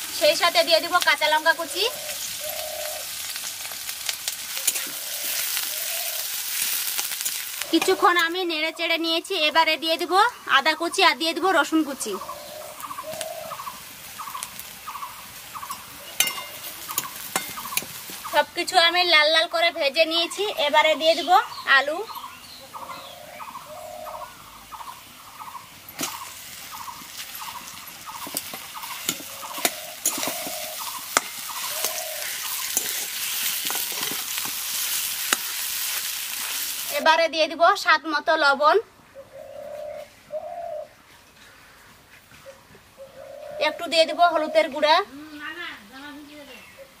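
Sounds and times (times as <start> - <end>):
oil sizzling: 0.0 - 37.4
metal spatula clicking on iron pan: 15.7 - 17.9, 28.2 - 32.0, 32.6 - 34.5.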